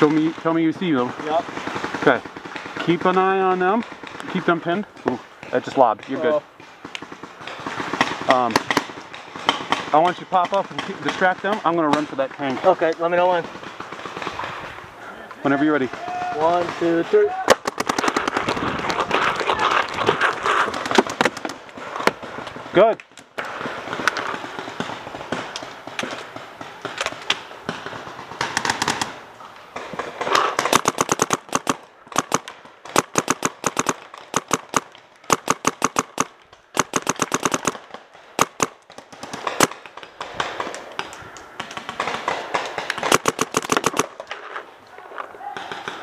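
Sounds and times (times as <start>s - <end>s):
paintball markers firing: 15.4s - 46.0s.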